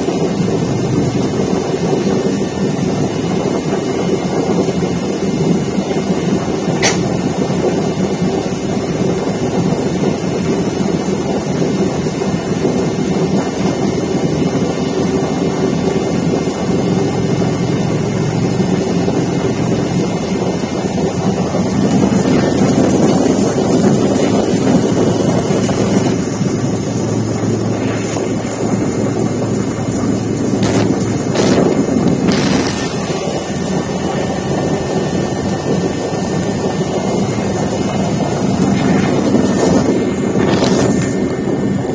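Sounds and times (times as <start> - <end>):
aircraft cabin drone: 0.0 - 41.9
low hum: 0.0 - 41.9
rushing air: 0.0 - 41.9
sharp click: 6.8 - 7.1.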